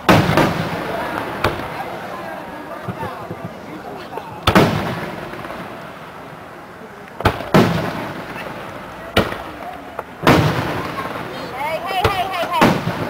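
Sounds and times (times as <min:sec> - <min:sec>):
firework shells bursting: 0:00.0 - 0:03.7, 0:04.4 - 0:06.4, 0:07.1 - 0:13.0
firework sharp crack: 0:00.0 - 0:03.8, 0:04.4 - 0:13.0
rolling echo: 0:00.0 - 0:13.0.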